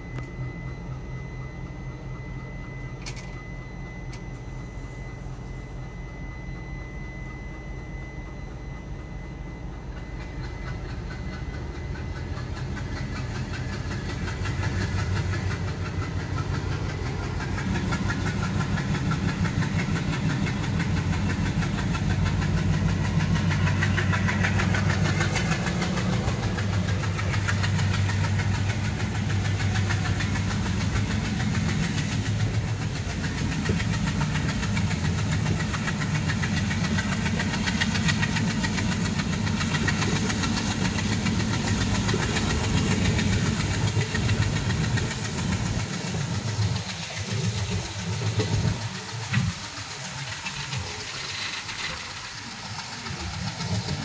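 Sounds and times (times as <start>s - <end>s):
locomotive engine drone: 0.0s - 54.0s
train wheels rumbling on rails: 0.0s - 54.0s.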